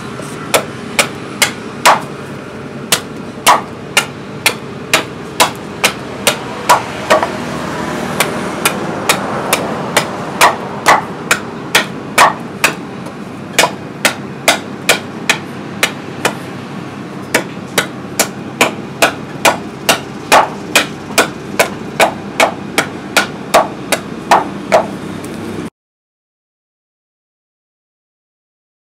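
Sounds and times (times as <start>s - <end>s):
billhook chopping wooden pole: 0.5s - 2.2s, 2.9s - 7.4s, 8.1s - 16.5s, 17.3s - 24.9s.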